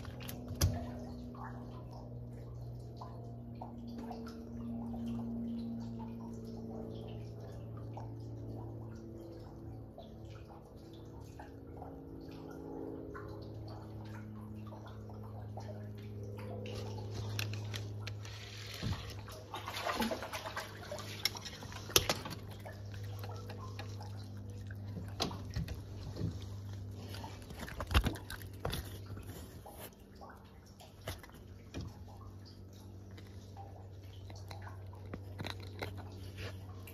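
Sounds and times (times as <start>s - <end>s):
low hum: 0.0s - 36.9s
rainwater dripping and sloshing: 0.0s - 36.9s
splashy clicks and knocks: 16.1s - 29.7s.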